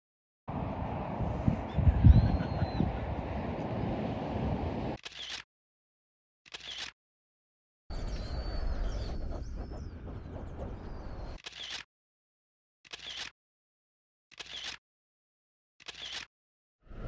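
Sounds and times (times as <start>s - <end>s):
steady low rumble: 0.5s - 5.0s
small birds chirping: 7.9s - 11.8s.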